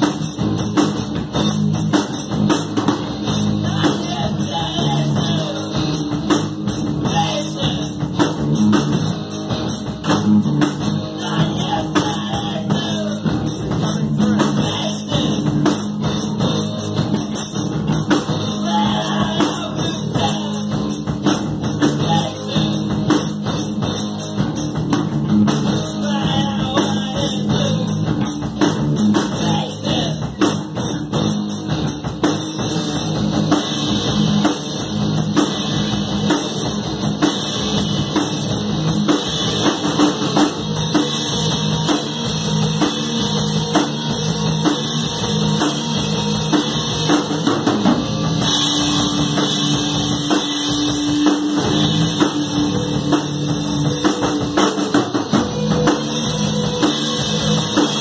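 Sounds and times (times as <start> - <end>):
rock band playing live: 0.0 - 58.0.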